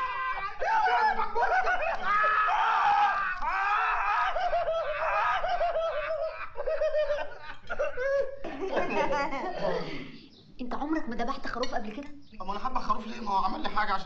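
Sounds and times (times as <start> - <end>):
men laughing hysterically: 0.0 - 9.8.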